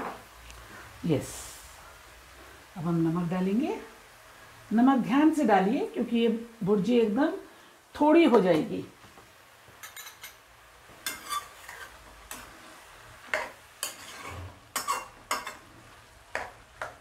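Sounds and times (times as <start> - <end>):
spoon scraping metal pan: 9.8 - 10.4, 11.0 - 12.5, 13.3 - 15.6.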